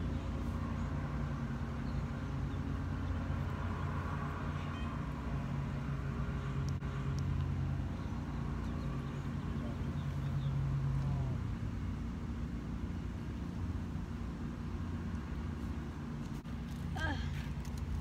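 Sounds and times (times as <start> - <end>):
road traffic hum: 0.0 - 18.0
vehicle engine: 0.0 - 18.0.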